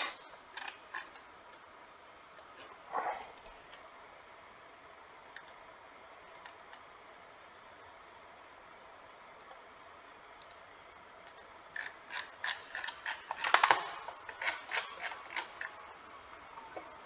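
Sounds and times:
mouse scroll wheel ratcheting: 0:11.8 - 0:15.7.

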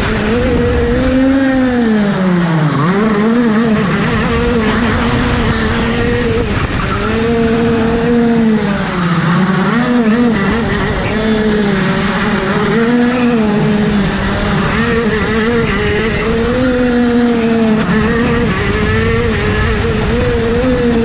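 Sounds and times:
kart engine at high revs: 0:00.0 - 0:21.0.

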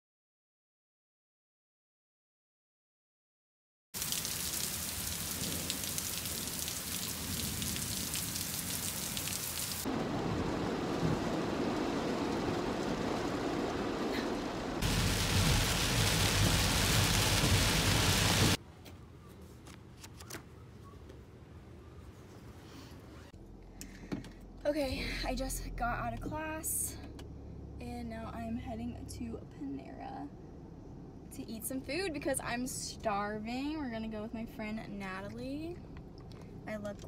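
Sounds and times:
steady rain: 0:04.0 - 0:18.6.

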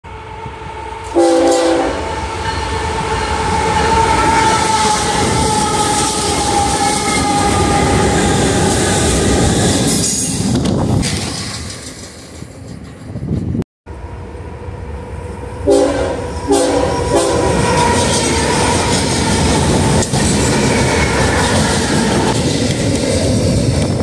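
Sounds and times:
train horn blast: 0:00.1 - 0:09.3, 0:14.0 - 0:19.9
locomotive rumble: 0:00.6 - 0:24.0
train wheels rolling: 0:01.0 - 0:13.6, 0:15.2 - 0:24.0.

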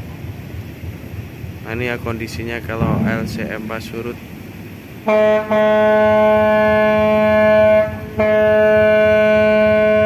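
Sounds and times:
ship's horn blasts: 0:02.8 - 0:10.0.

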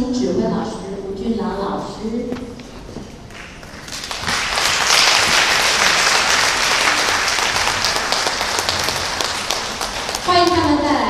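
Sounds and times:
audience applauding: 0:03.3 - 0:10.6.

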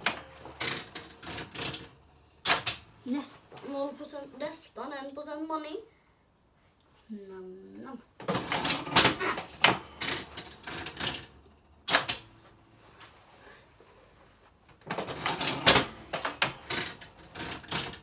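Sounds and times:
fruit machine clicking and clattering: 0:00.0 - 0:03.7, 0:08.2 - 0:12.7, 0:14.8 - 0:18.0.

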